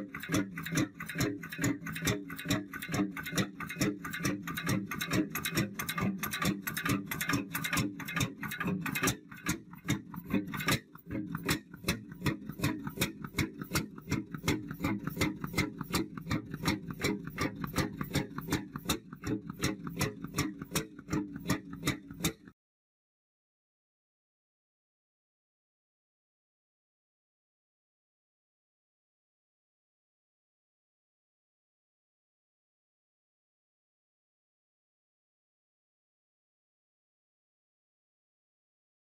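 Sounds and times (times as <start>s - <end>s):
stationary engine clicking and humming: 0.0s - 22.6s.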